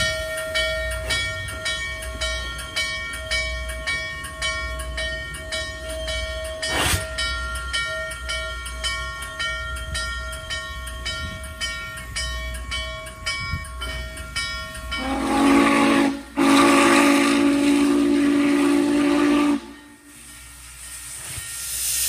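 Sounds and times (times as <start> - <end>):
steam locomotive bell ringing: 0.0 - 22.0
rush of steam: 6.4 - 7.4, 13.8 - 22.0
steam whistle blasts: 15.0 - 20.3.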